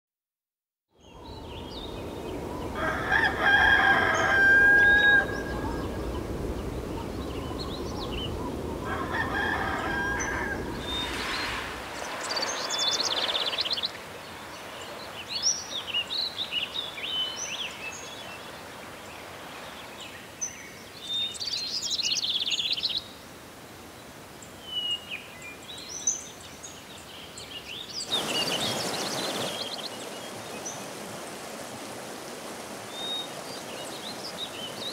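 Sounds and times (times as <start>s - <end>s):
rushing water: 1.1s - 34.9s
rooster crowing: 2.6s - 6.0s, 8.8s - 11.9s
small birds chirping: 5.3s - 8.8s, 10.2s - 18.5s.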